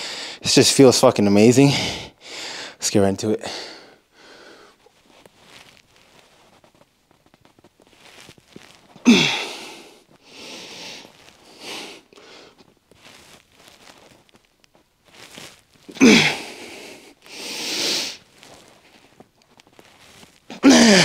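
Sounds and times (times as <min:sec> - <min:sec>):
man breathing hard: 0:00.0 - 0:00.4, 0:01.6 - 0:02.8, 0:03.4 - 0:04.8, 0:09.0 - 0:12.7, 0:16.0 - 0:18.2
man grunting and moaning: 0:09.0 - 0:09.6, 0:15.9 - 0:16.6, 0:20.5 - 0:21.0
loud groans: 0:16.0 - 0:16.5, 0:20.6 - 0:21.0.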